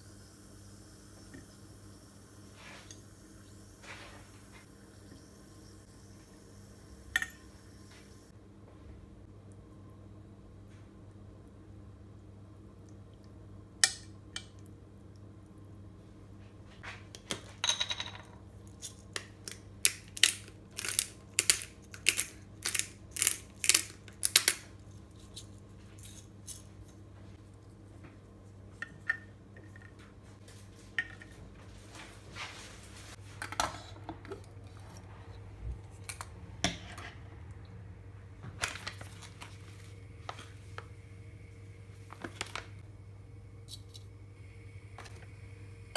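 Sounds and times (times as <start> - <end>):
steady low hum: 18.3 - 45.9
pepper grinder crunching: 18.7 - 26.7.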